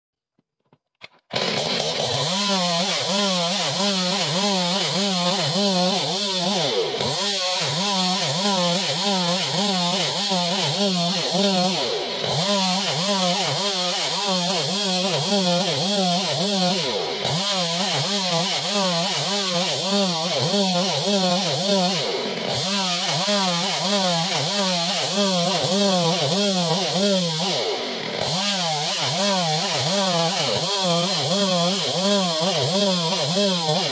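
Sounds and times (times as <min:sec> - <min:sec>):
chainsaw cutting wood: 0:00.4 - 0:33.9.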